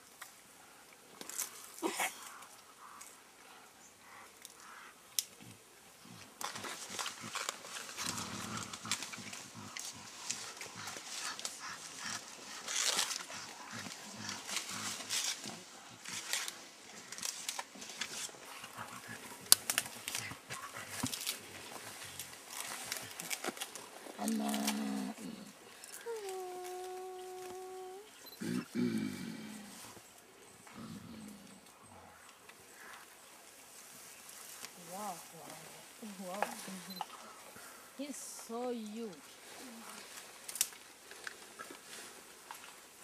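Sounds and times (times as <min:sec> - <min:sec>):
leaves and stems rustling and snapping: 0:01.2 - 0:03.2, 0:06.2 - 0:28.1, 0:33.7 - 0:37.3, 0:38.4 - 0:43.0
gorilla grunts: 0:28.4 - 0:29.7.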